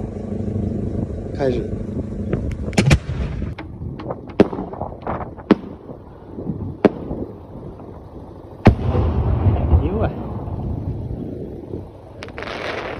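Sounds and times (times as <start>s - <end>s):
fireworks bangs and cracks: 2.8s - 6.0s, 6.8s - 7.3s, 8.6s - 10.5s, 12.2s - 12.9s.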